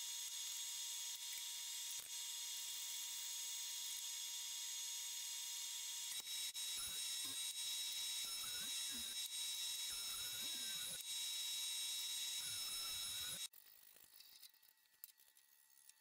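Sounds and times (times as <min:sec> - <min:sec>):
jointer-planer whining: 0:06.1 - 0:13.5.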